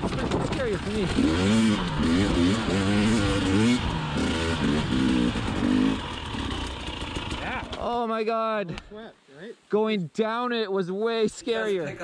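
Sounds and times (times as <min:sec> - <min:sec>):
two-stroke engine revving: 0:00.0 - 0:07.9.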